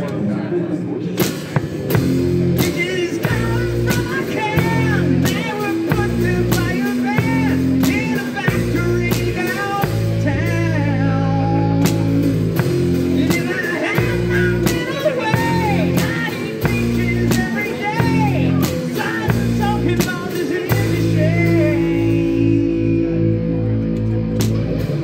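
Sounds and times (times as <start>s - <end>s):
live rock band playing: 1.0s - 25.0s
drum kit hits: 1.2s - 10.7s
person singing: 2.5s - 23.9s.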